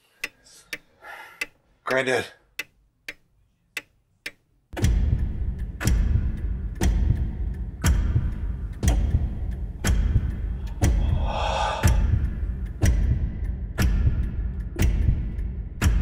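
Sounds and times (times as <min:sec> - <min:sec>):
grandfather clock ticking: 0:00.2 - 0:03.2, 0:03.8 - 0:16.0
deep rumble: 0:07.8 - 0:13.3
hissing swell: 0:10.6 - 0:12.5.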